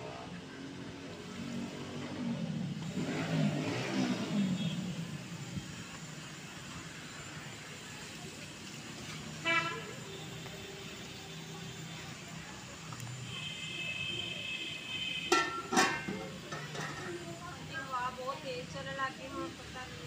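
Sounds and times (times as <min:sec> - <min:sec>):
vehicle passing by: 0:00.2 - 0:05.3.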